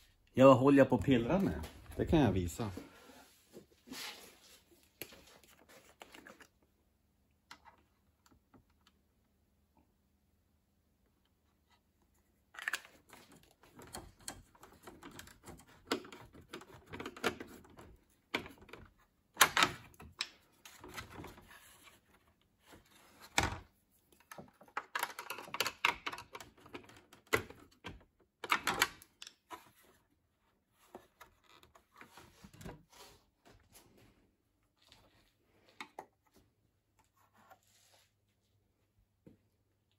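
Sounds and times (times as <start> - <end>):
tools and parts clicking and tapping: 12.6 - 21.2, 23.4 - 29.6.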